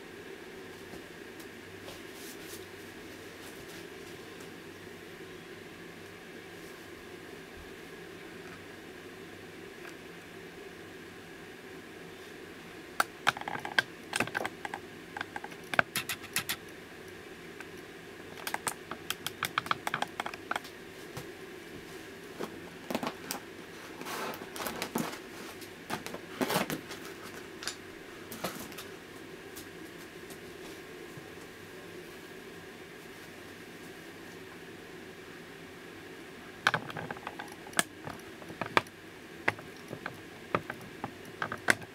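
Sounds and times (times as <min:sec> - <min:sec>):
steady low hum: 0:00.0 - 0:41.9
plastic toy pieces clicking: 0:18.4 - 0:20.6.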